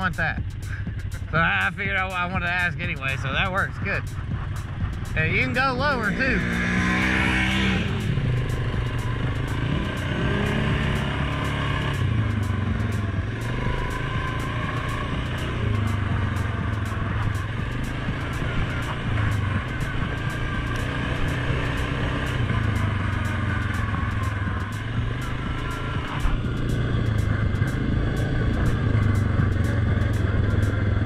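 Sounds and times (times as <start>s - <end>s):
atv engine running: 0.0s - 31.0s.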